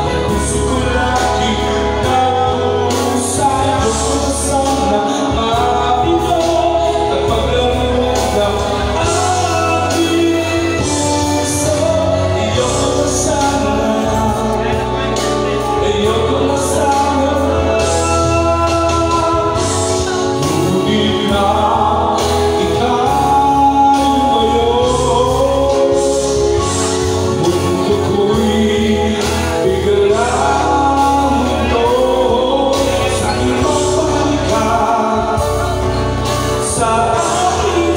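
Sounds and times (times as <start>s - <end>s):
instrumental accompaniment with bass: 0.0s - 37.9s
person singing into microphone: 0.0s - 37.9s.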